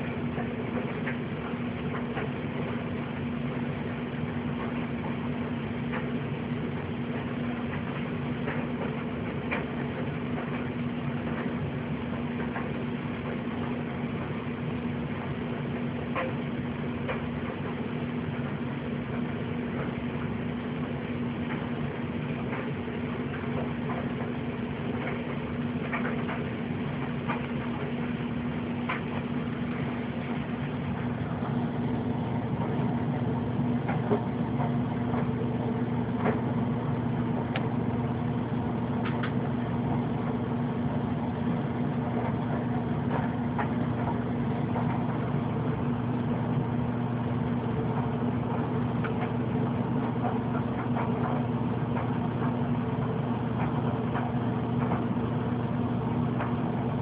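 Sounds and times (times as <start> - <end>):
low mechanical hum: 0.0 - 57.0.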